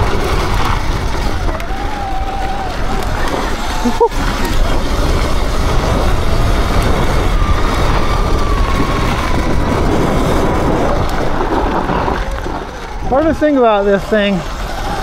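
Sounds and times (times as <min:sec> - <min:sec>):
electric motor whine: 0:00.0 - 0:15.0
tyre rumble: 0:00.0 - 0:15.0
wind buffeting: 0:00.0 - 0:15.0.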